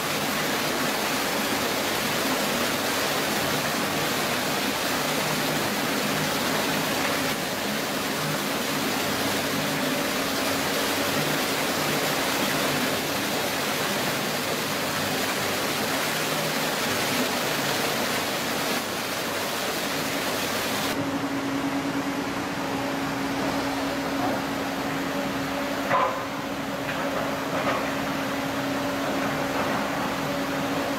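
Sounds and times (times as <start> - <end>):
water rushing: 0.0 - 30.9.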